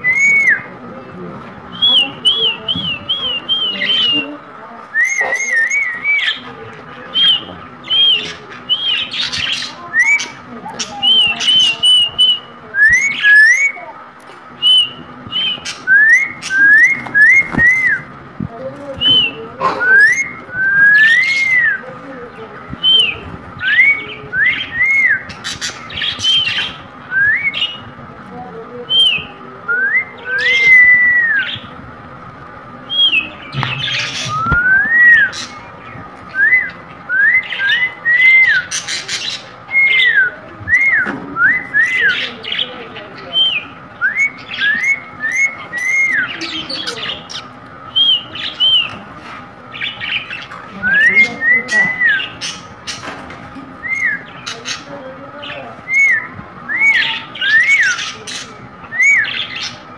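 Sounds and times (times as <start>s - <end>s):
parakeet whistled calls: 5.0s - 13.9s, 19.1s - 21.8s, 43.3s - 49.0s, 53.8s - 54.8s, 55.8s - 59.8s.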